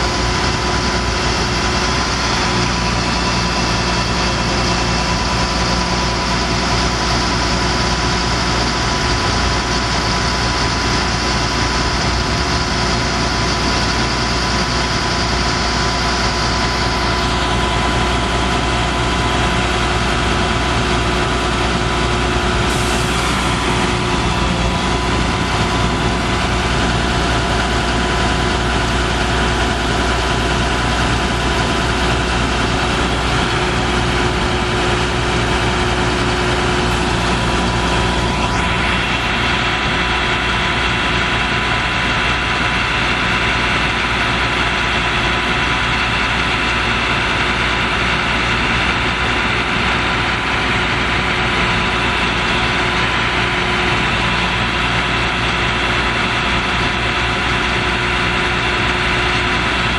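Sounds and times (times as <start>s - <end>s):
diesel truck engine idling: 0.0s - 59.9s.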